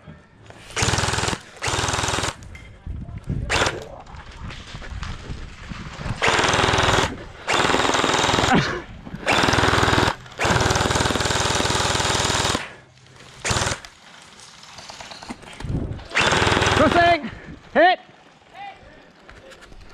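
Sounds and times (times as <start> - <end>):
gel blaster rapid fire rattle: 0.8 - 2.4, 6.2 - 8.5, 9.2 - 12.7, 13.4 - 13.9, 16.1 - 17.1.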